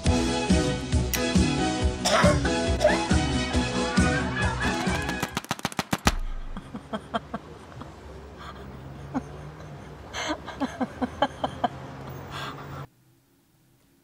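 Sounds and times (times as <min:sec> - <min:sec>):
paintball marker firing: 0:04.8 - 0:06.6
woman laughing softly: 0:06.4 - 0:11.9.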